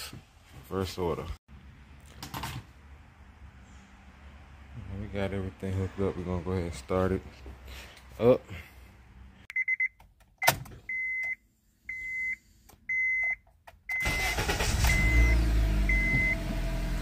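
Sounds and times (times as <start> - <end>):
car warning chime beeping: 9.5 - 10.0, 10.9 - 16.5
car engine starting and idling: 13.4 - 17.0.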